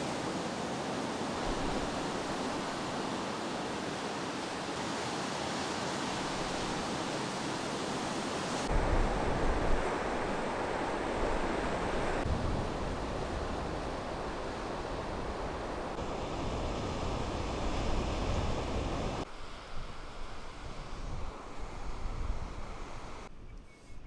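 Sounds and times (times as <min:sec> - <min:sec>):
ocean surf washing onto beach: 0:00.0 - 0:23.3
wind rumbling on microphone: 0:08.7 - 0:24.0.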